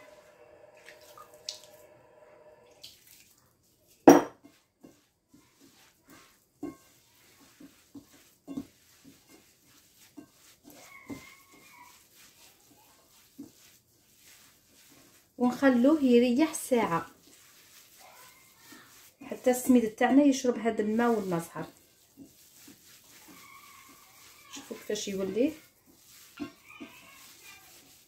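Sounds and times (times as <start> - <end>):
hands pressing dough in bowl: 3.9 - 28.0
knock against ceramic dish: 4.1 - 4.4.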